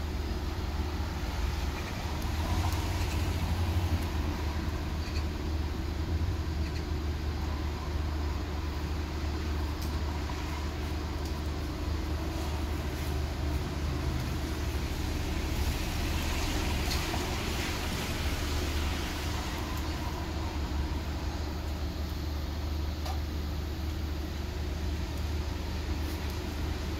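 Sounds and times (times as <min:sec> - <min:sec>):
street traffic rumble: 0:00.0 - 0:26.9
vehicle passing by: 0:01.2 - 0:04.8.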